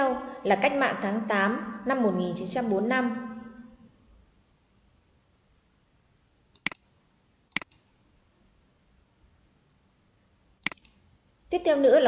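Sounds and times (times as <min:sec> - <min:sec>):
computer mouse clicks: 0:06.5 - 0:08.0, 0:10.6 - 0:11.1.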